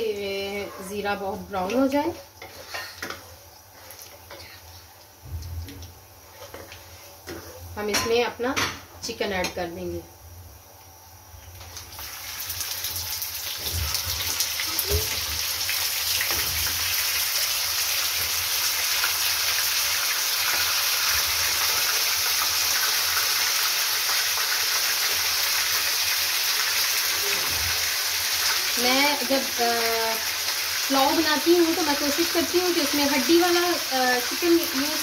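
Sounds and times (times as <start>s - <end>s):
chicken sizzling in hot oil: 11.0s - 35.0s.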